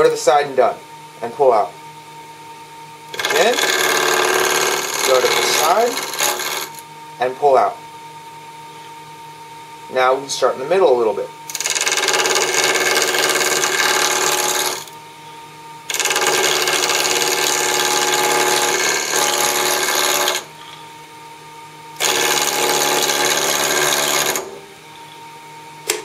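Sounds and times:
gouge cutting spinning wood: 3.1 - 6.8, 11.5 - 15.0, 15.9 - 20.6, 22.0 - 24.5
lathe motor humming: 3.1 - 6.8, 11.5 - 15.0, 15.9 - 20.8, 22.0 - 25.1.

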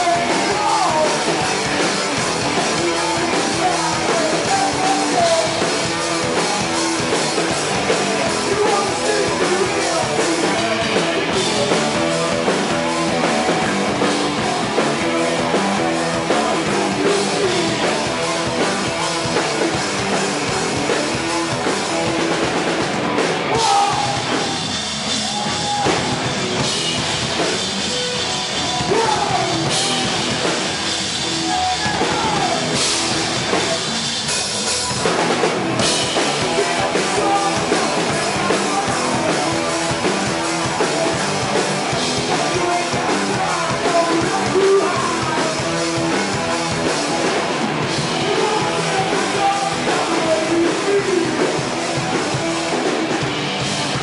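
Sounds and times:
person singing: 0.0 - 13.2, 14.7 - 19.8, 23.5 - 26.2, 27.9 - 33.1, 36.2 - 47.2, 47.8 - 51.9
distorted electric guitar: 0.0 - 54.0
drum kit: 0.0 - 54.0.

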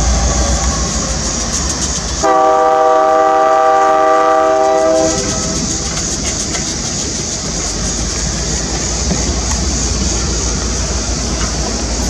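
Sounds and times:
locomotive rumbling on rails: 0.0 - 12.0
locomotive air horn blast: 2.2 - 5.6.

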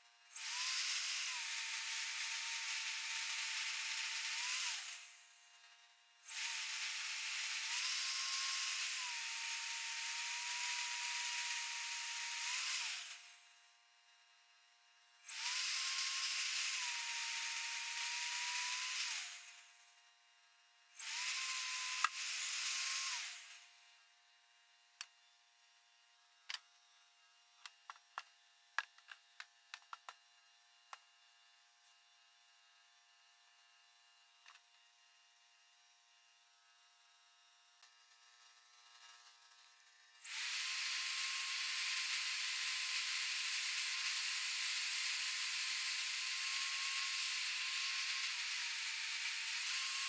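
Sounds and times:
drill press boring steel: 0.3 - 13.5, 15.3 - 19.9, 21.0 - 24.0, 40.1 - 50.0.

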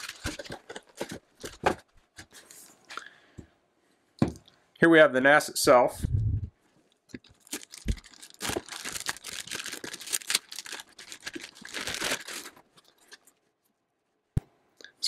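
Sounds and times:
plastic bag crinkling: 0.0 - 1.6, 7.1 - 13.4.

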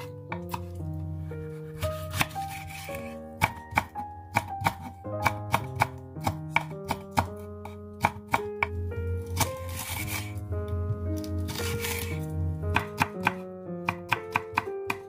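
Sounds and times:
knife tapping on wooden board: 3.4 - 8.8, 12.7 - 15.0.

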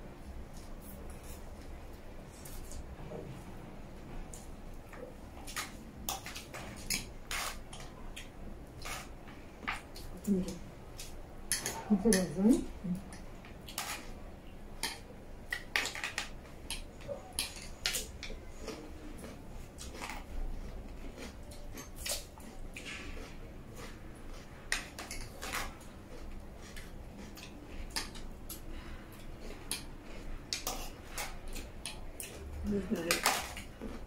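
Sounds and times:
chewing: 14.8 - 34.0.

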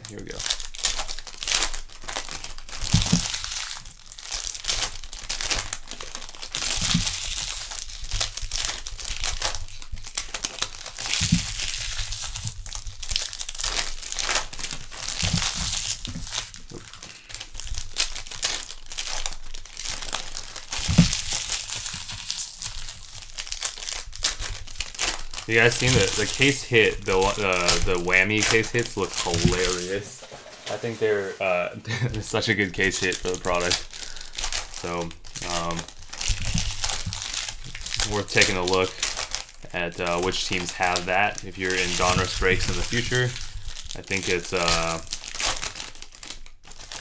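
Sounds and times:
wrappers tearing and crinkling: 0.0 - 31.2, 31.9 - 47.0.

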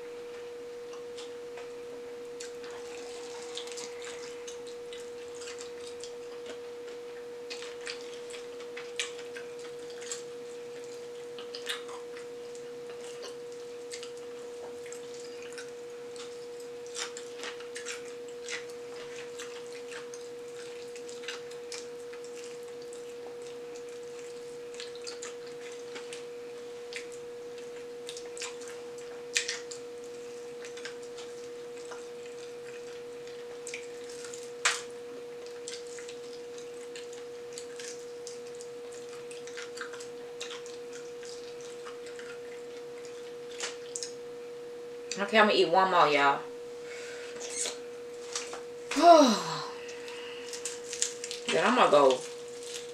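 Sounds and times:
steady mid-pitched hum: 0.0 - 52.9
crunching fried chicken: 50.0 - 51.6.

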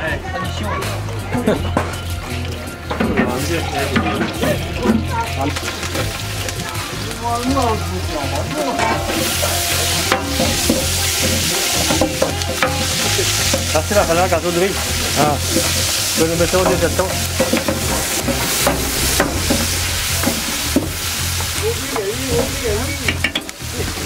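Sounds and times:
onions sizzling in hot oil: 2.0 - 24.0.

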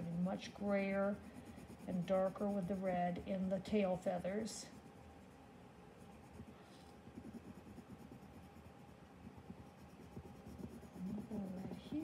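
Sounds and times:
pencil scratching on paper: 0.0 - 5.4, 6.0 - 12.0.

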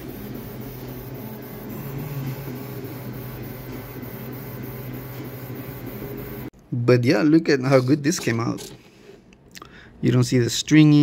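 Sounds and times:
steady printer hum: 0.0 - 6.5
stepper motors whining: 0.0 - 6.5.

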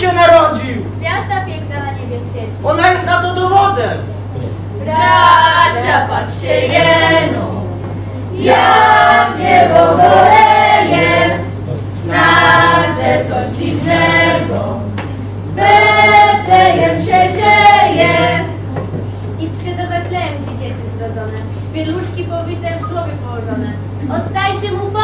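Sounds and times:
group singing a carol: 4.8 - 18.8.

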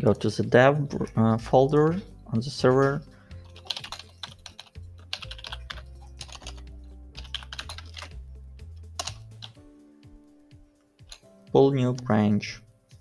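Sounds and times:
soft background music: 0.0 - 13.0
typing on a keyboard: 3.5 - 8.2, 9.0 - 9.6.

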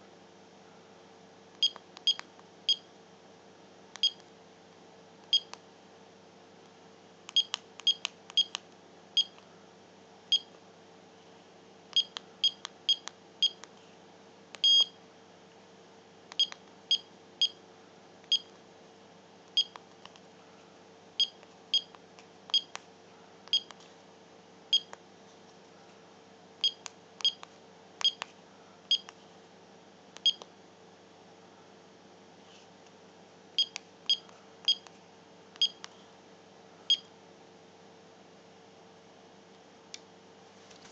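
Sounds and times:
keypad beeps: 1.6 - 2.9, 4.0 - 4.2, 5.3 - 5.5, 7.3 - 8.6, 12.0 - 13.6, 14.6 - 14.9, 16.4 - 17.6, 19.6 - 19.8, 21.2 - 22.7, 23.5 - 23.7, 24.7 - 24.9, 26.6 - 27.4, 28.0 - 28.2, 30.2 - 30.4, 33.6 - 34.8, 35.6 - 35.8.

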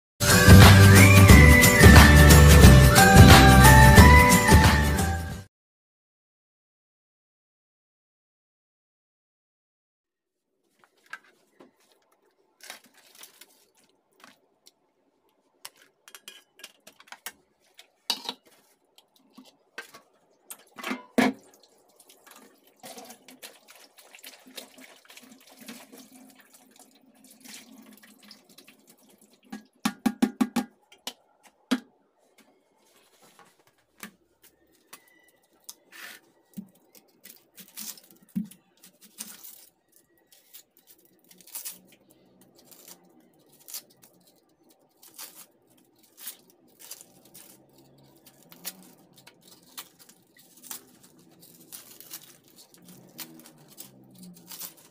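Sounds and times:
water splashing in a metal sink: 19.1 - 30.1
bowls and metal tray clattering: 19.8 - 21.6.

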